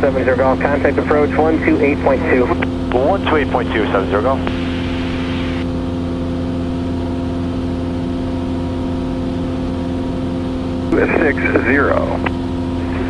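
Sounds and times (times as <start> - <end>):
airplane engine droning: 0.0 - 13.0.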